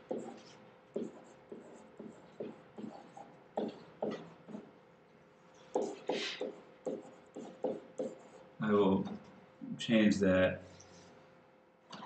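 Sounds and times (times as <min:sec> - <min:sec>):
stylus scratching on a tablet: 0:00.0 - 0:04.7, 0:05.6 - 0:08.5.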